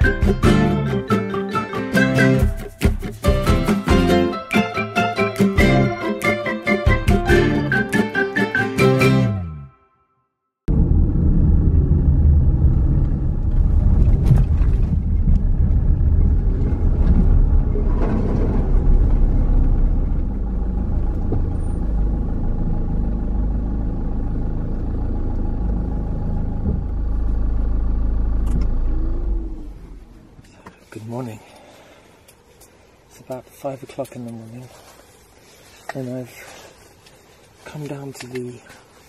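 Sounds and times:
car engine and road noise: 0:10.7 - 0:31.3.

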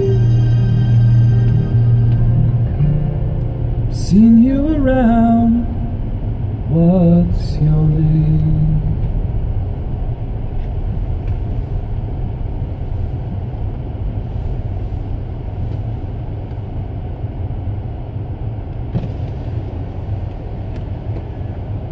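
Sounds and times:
car engine and tyres rumbling: 0:00.0 - 0:21.9.

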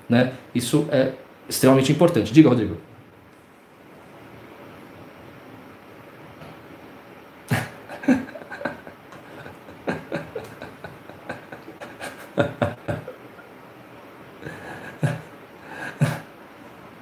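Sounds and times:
man laughing: 0:07.5 - 0:13.6, 0:14.4 - 0:16.3.

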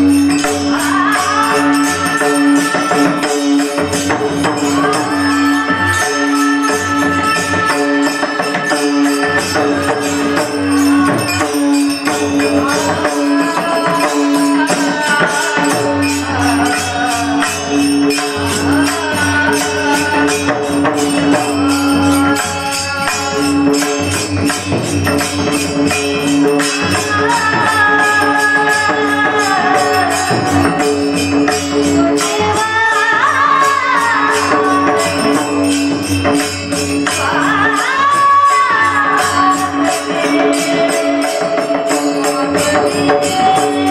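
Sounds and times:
devotional singing: 0:00.0 - 0:24.2, 0:37.1 - 0:43.9
jingling metal percussion: 0:00.0 - 0:43.9.

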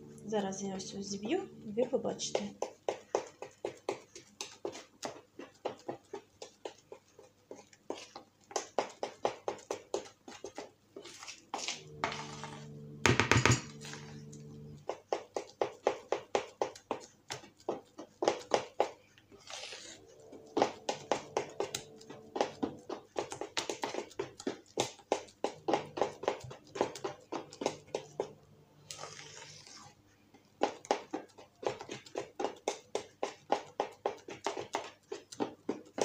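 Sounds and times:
steady hum: 0:00.0 - 0:02.4, 0:11.8 - 0:14.8
spoon beating batter in a bowl: 0:00.4 - 0:36.0.

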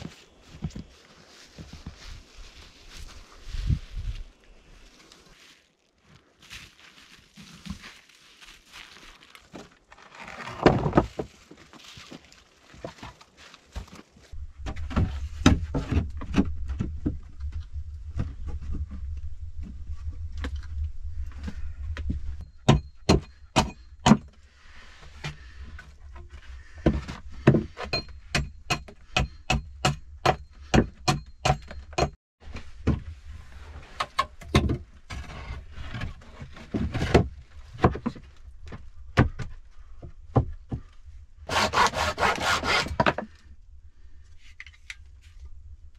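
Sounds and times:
low steady rumble: 0:14.4 - 0:22.5.

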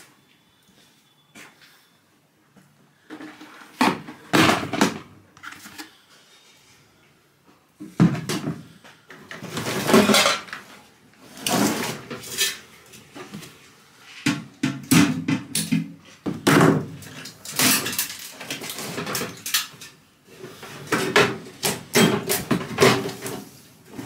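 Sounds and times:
sheet metal clattering and scraping: 0:09.4 - 0:10.6.

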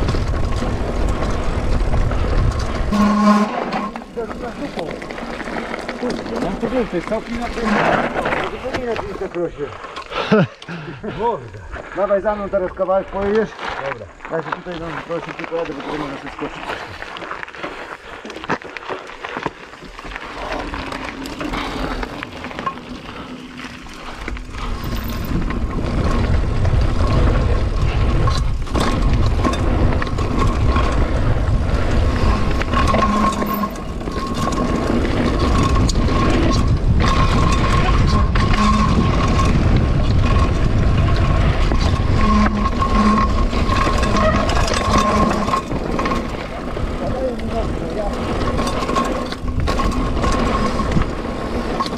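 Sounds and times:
wind buffeting microphone: 0:00.0 - 0:09.3, 0:20.0 - 0:51.9
bike tyres rumbling on dirt: 0:00.0 - 0:51.9
thin whine: 0:02.8 - 0:04.7, 0:42.0 - 0:45.7.

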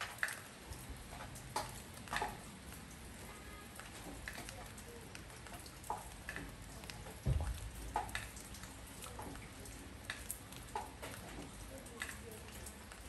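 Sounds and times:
water drips plinking: 0:00.0 - 0:13.0
dull low thud: 0:07.2 - 0:07.8.

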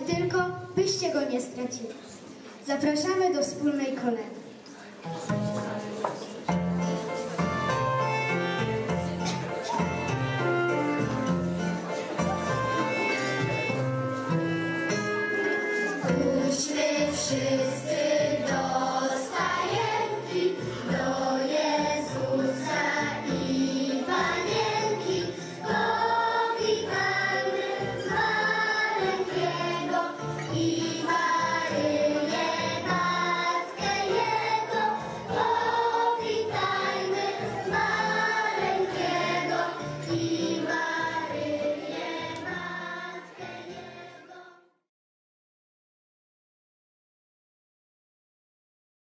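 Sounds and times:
musical accompaniment: 0:05.0 - 0:44.5
children singing a carol: 0:15.5 - 0:44.7.

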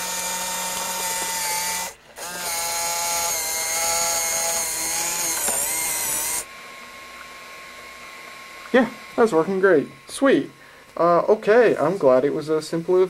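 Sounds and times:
tape transport motor whine: 0:00.0 - 0:12.2.

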